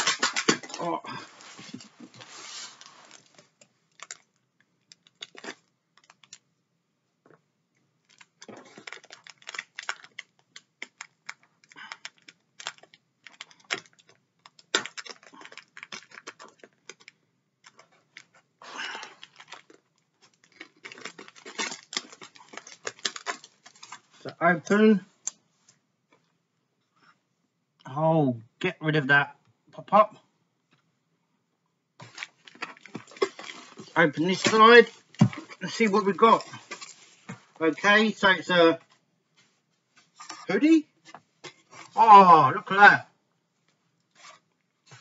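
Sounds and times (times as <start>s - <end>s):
packing tape pulled away: 19.0s - 24.0s.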